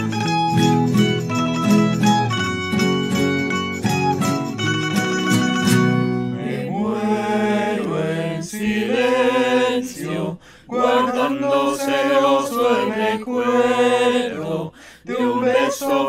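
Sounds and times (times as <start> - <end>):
classical guitars strumming: 0.0 - 6.7
voices singing: 6.3 - 16.0.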